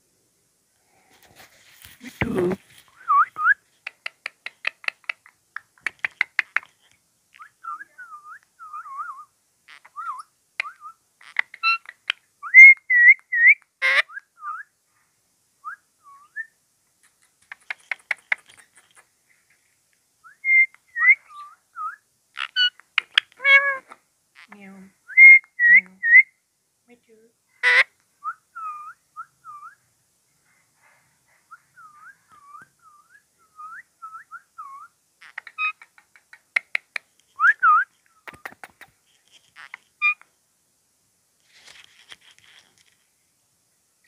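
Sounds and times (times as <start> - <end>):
parakeet clicks: 3.8 - 6.7, 35.2 - 37.1
parakeet whistles and chirps: 7.4 - 14.7, 20.3 - 22.8, 25.1 - 26.3, 27.6 - 29.8, 31.5 - 35.8
sharp parakeet calls: 8.2 - 14.2, 22.4 - 24.6, 27.6 - 28.0, 34.6 - 38.7, 39.6 - 40.2.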